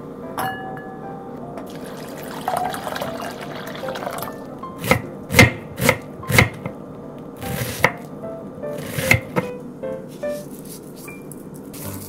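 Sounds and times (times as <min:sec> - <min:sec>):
background music: 0:00.0 - 0:12.0
water poured into glass bowl: 0:01.7 - 0:04.4
knife chopping on wooden board: 0:04.8 - 0:06.7, 0:07.4 - 0:08.1, 0:08.8 - 0:09.6.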